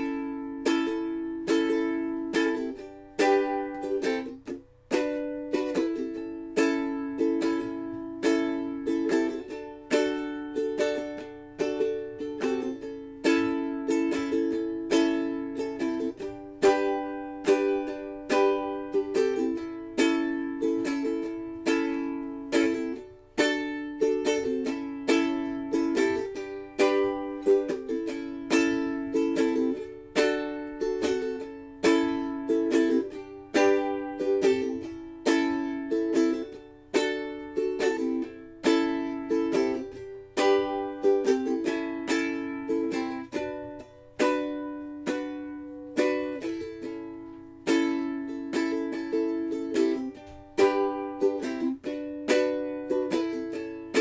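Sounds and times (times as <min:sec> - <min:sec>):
ukulele strumming chords: 0:00.0 - 0:54.0.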